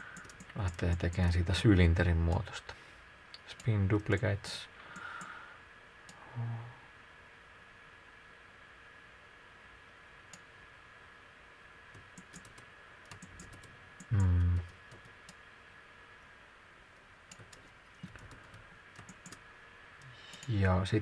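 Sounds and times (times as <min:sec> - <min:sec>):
faint steady whine: 0:00.0 - 0:21.0
mouse and keyboard clicks: 0:00.1 - 0:01.4, 0:12.0 - 0:14.3
man murmuring mm: 0:06.2 - 0:06.9, 0:14.1 - 0:14.7.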